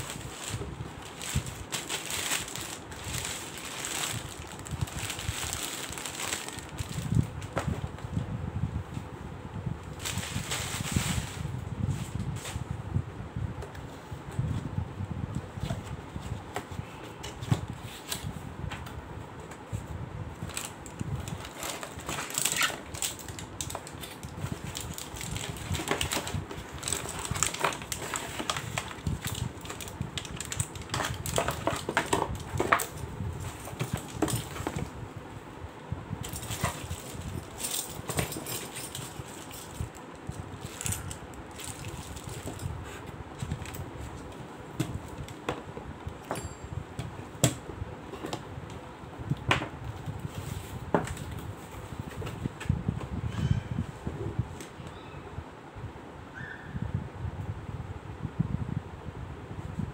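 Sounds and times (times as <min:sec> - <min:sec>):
plastic bag crinkling: 0:00.0 - 0:07.3, 0:20.5 - 0:34.8, 0:36.3 - 0:42.6
cardboard rustling and scraping: 0:00.0 - 0:08.0, 0:19.7 - 0:35.0, 0:36.2 - 0:40.0, 0:50.0 - 0:52.7.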